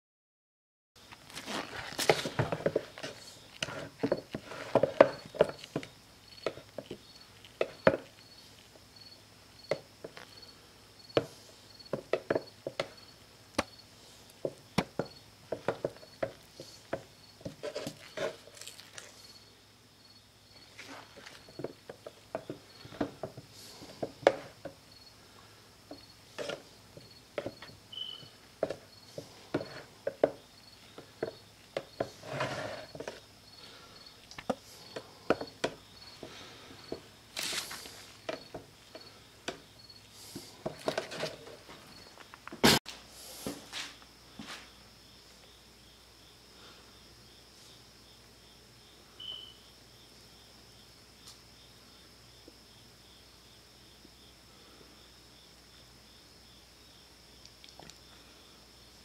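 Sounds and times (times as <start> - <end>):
faint high chirp: 27.9 - 28.4, 49.2 - 49.7.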